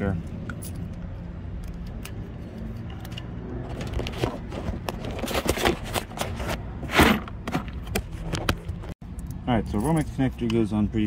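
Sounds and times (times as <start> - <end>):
metal parts clicking and scraping: 0.4 - 8.0.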